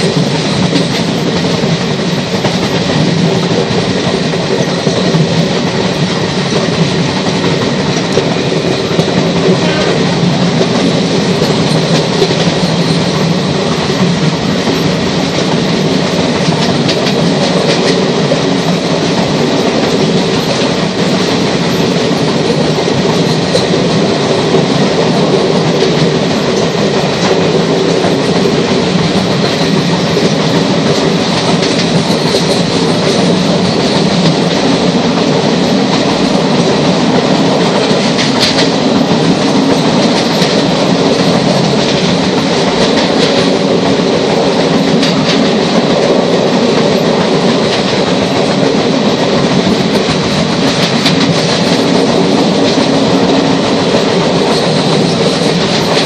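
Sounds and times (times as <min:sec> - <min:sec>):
train running at speed: 0:00.0 - 0:56.0
wheels clacking on track: 0:00.0 - 0:56.0.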